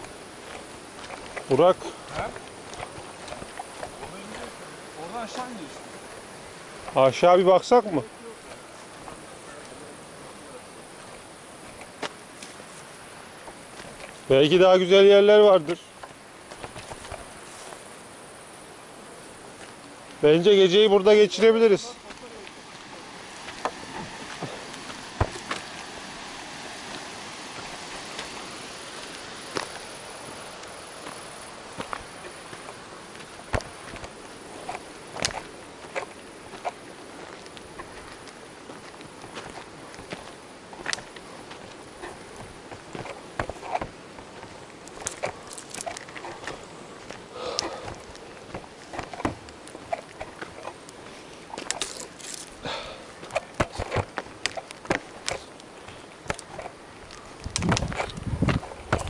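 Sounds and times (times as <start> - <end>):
footsteps crunching on gravel: 0.0 - 18.0, 19.4 - 59.0
outdoor hiss: 0.0 - 59.0
person breathing: 47.3 - 48.0, 52.6 - 53.2.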